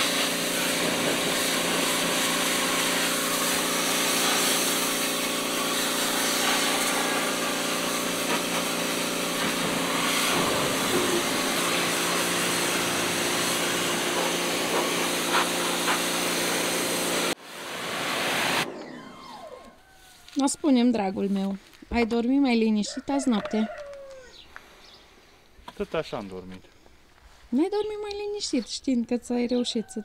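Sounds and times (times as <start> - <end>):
water jet hissing: 0.0 - 19.3
pressure washer motor hum: 0.0 - 19.8.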